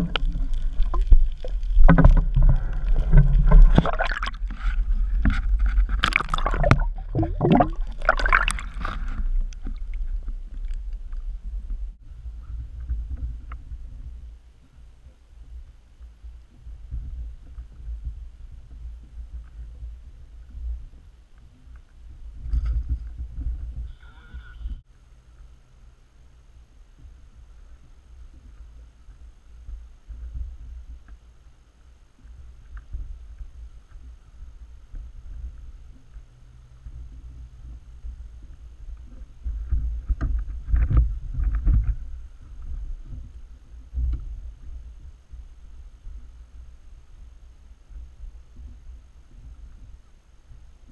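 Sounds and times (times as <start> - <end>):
water splashing: 0.0 - 11.6
muffled low rumbling and bumping: 0.0 - 14.4, 22.1 - 23.9, 33.0 - 47.0
wind noise on microphone: 0.0 - 24.9, 32.4 - 50.9.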